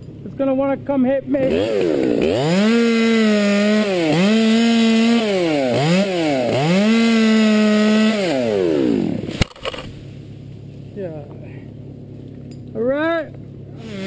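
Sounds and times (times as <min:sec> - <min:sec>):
chainsaw cutting wood: 0:01.3 - 0:10.0, 0:13.7 - 0:14.0.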